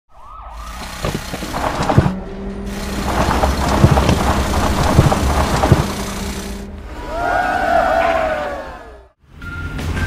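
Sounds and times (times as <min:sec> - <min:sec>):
drilling machine rumbling and grinding: 0:00.7 - 0:07.1.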